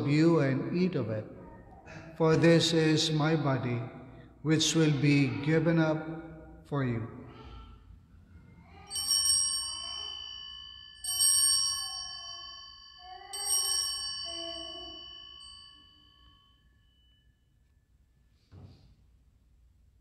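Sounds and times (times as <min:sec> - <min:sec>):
altar bells ringing: 0:08.6 - 0:18.3.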